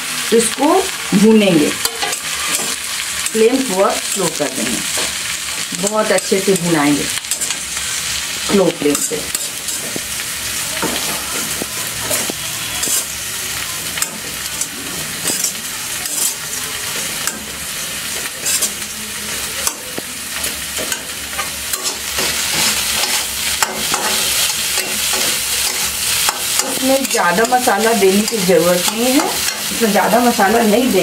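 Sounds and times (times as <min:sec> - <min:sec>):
food sizzling in pan: 0:00.0 - 0:31.0
metal spatula scraping pan: 0:10.8 - 0:13.2, 0:14.0 - 0:18.9.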